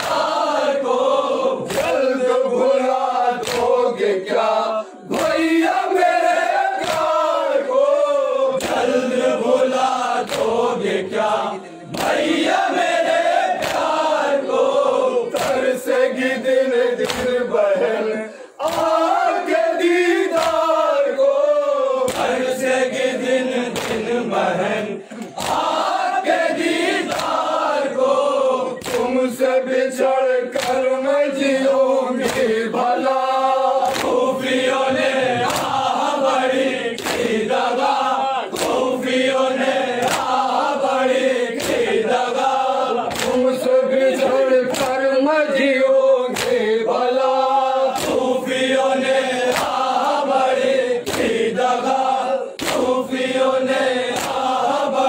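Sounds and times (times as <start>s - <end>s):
hands slapping chests: 0.0s - 0.5s, 1.6s - 2.1s, 3.3s - 4.0s, 5.1s - 7.5s, 8.5s - 11.3s, 11.9s - 14.7s, 15.3s - 15.8s, 17.0s - 17.6s, 18.6s - 19.6s, 20.2s - 20.9s, 22.0s - 24.2s, 25.1s - 29.3s, 30.5s - 31.0s, 32.2s - 32.6s, 33.8s - 45.3s, 46.3s - 46.8s, 47.9s - 52.0s, 52.6s - 53.4s, 54.0s - 55.0s
men chanting in unison: 0.0s - 55.0s.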